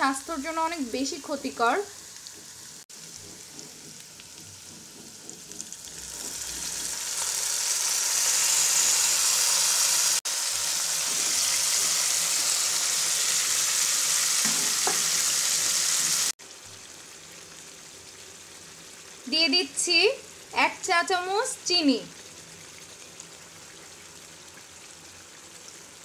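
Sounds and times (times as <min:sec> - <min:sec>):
oil sizzling in a pan: 0:00.0 - 0:26.0
meat searing with loud hiss: 0:01.7 - 0:18.9.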